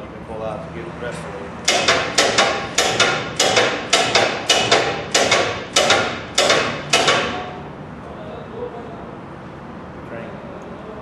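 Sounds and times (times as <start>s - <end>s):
hammer striking metal: 1.6s - 7.6s.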